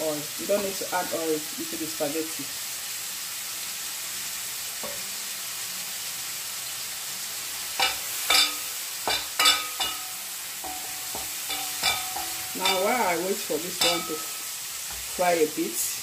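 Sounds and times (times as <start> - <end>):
pancetta sizzling in a pan: 0.0 - 16.0
wooden spoon scraping a pan: 7.8 - 15.3.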